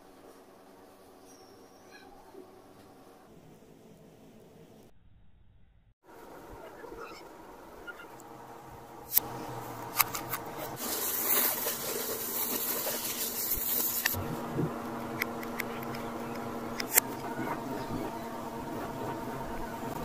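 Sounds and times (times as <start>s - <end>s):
plastic reel rubbing and scraping: 9.8s - 16.0s
faint steady hum: 12.8s - 20.0s
sharp clicks: 15.1s - 17.3s.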